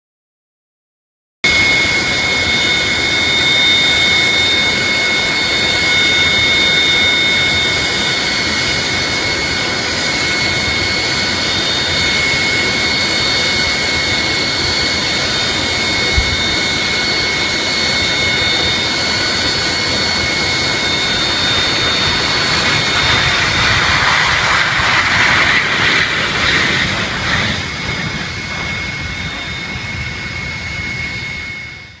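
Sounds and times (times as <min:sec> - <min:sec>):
jet engines whining: 0:01.5 - 0:32.0
broad rushing noise: 0:15.4 - 0:17.8, 0:19.5 - 0:29.9.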